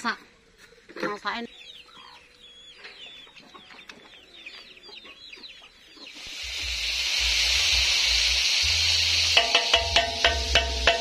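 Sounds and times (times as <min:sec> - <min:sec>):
chicks peeping: 0:01.4 - 0:08.9
fish frying in hot oil: 0:06.2 - 0:11.0.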